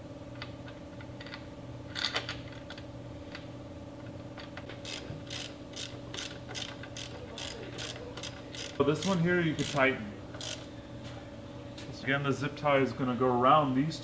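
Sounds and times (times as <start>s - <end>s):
socket ratchet clicking: 4.8s - 10.7s.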